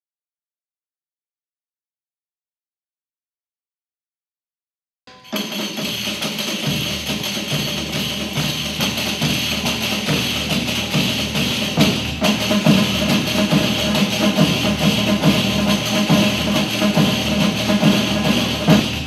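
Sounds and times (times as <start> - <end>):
intro music with percussive beat: 5.1 - 19.0.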